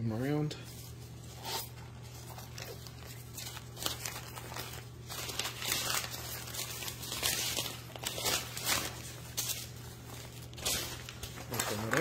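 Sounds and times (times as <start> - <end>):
steady low hum: 0.0 - 12.0
nylon bag rustling: 0.6 - 12.0
plastic packaging crinkling: 0.7 - 12.0.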